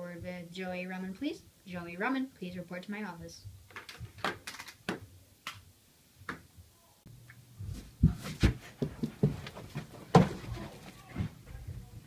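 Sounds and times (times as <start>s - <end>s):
body thumping on carpeted floor: 7.6s - 11.3s.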